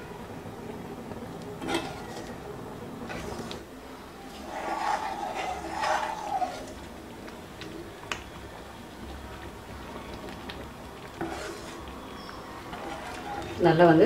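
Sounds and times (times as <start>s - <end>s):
metal spoon scraping pan: 1.6s - 2.3s, 4.3s - 6.8s, 11.2s - 11.8s, 12.6s - 13.7s.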